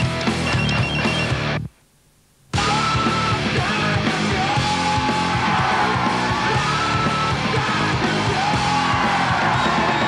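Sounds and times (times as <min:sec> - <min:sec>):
loud rock music with guitar: 0:00.0 - 0:01.6, 0:02.6 - 0:10.0.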